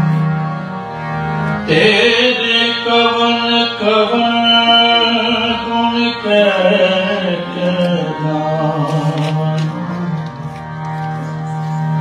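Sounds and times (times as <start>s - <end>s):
harmonium drone: 0.0s - 12.0s
man singing a hymn: 1.7s - 10.2s.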